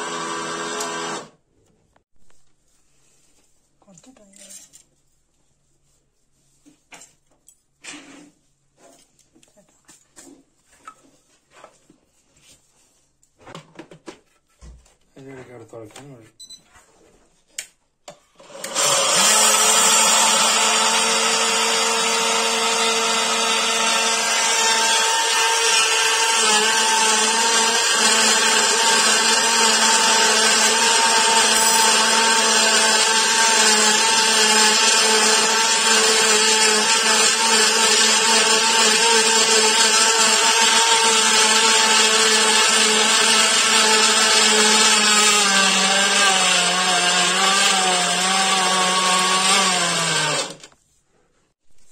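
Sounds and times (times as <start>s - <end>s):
mixer grinder motor whining: 0.0s - 1.4s, 18.4s - 50.8s.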